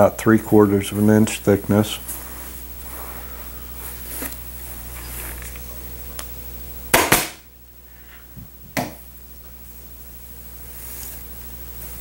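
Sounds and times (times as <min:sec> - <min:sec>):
steady low hum: 0:00.0 - 0:12.0
sharp loud knocks: 0:06.9 - 0:07.4.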